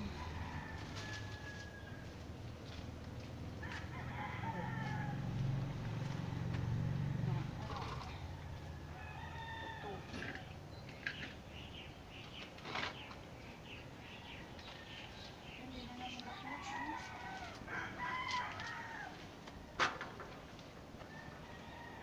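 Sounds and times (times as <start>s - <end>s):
rooster crowing: 0.0s - 2.2s, 3.6s - 5.7s, 8.2s - 10.5s, 16.4s - 19.3s, 21.0s - 22.0s.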